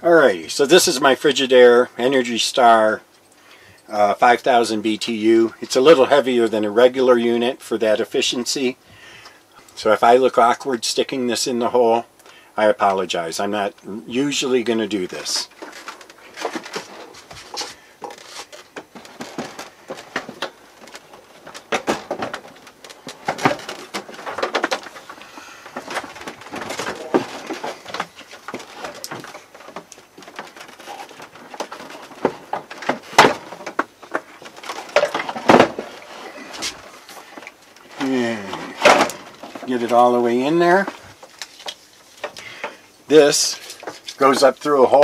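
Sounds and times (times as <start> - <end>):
air conditioner casing scraping: 14.7 - 45.0.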